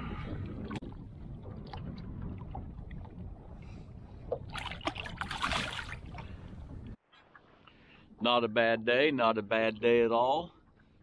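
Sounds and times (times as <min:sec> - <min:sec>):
wind rumble on microphone: 0:00.0 - 0:07.0
water sloshing: 0:04.2 - 0:07.8.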